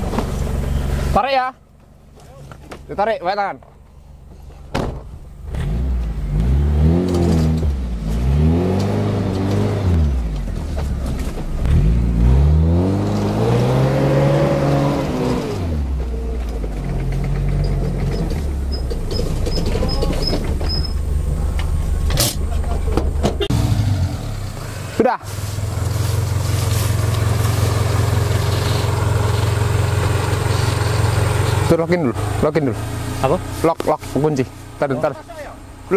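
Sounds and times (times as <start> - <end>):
engine revving hard: 5.4 - 10.3, 11.6 - 15.9, 23.4 - 24.9.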